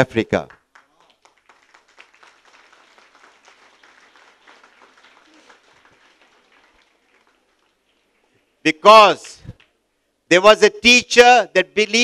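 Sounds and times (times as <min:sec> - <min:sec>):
audience applauding: 0:00.5 - 0:08.3.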